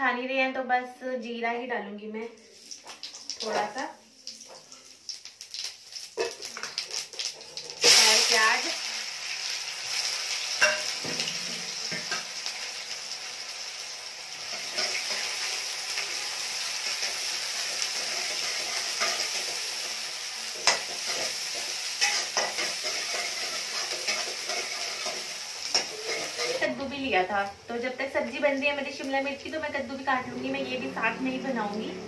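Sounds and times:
onion sizzling in pan: 2.4s - 32.0s
metal spatula scraping pan: 20.6s - 26.7s.

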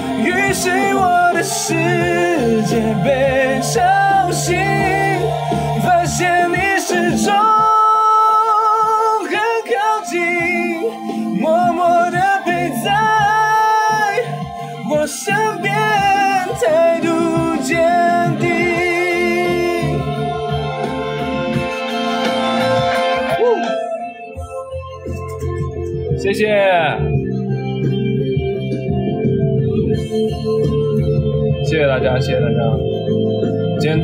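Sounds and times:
man singing pop ballad: 0.0s - 24.0s
instrumental backing track: 0.0s - 34.0s.

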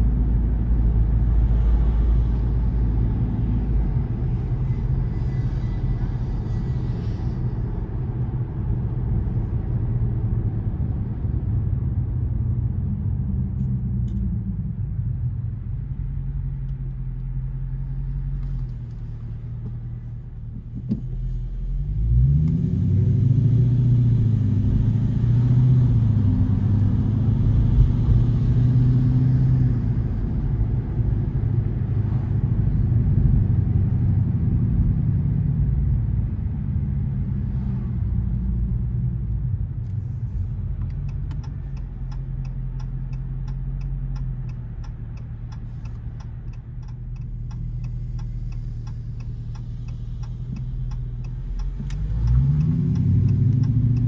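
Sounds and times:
car engine: 0.0s - 54.0s
road rumble: 0.0s - 54.0s
turn signal ticking: 38.4s - 54.0s.

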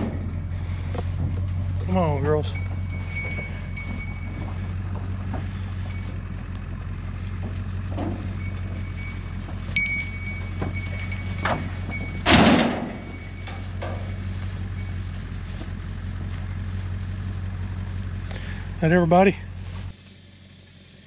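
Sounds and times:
steady low hum: 0.0s - 21.0s
hooves knocking on metal floor: 2.4s - 6.2s, 7.4s - 14.3s
loud clattering bang: 10.6s - 14.0s.

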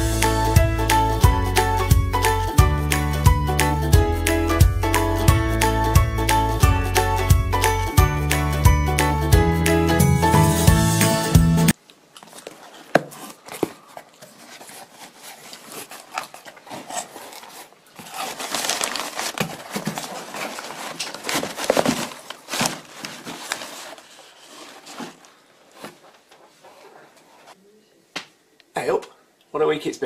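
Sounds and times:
paper packing rustling: 12.2s - 27.6s
cardboard taps: 12.9s - 13.8s.

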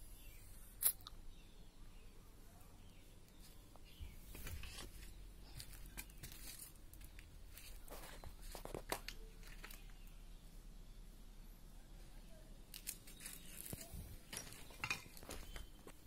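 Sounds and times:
footsteps crunching on dry leaves: 4.3s - 9.8s, 12.8s - 16.0s.

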